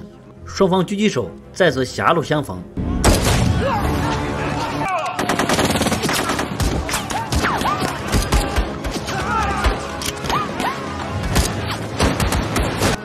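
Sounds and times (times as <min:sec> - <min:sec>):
background music: 0:00.0 - 0:13.0
gunshots: 0:03.0 - 0:03.9, 0:04.9 - 0:13.0.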